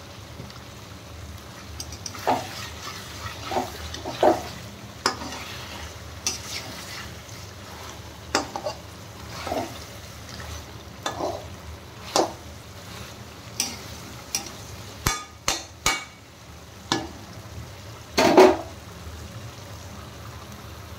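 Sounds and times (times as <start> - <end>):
low frying sizzle: 0.0 - 20.9
metal spatula scraping a pan: 1.8 - 15.3.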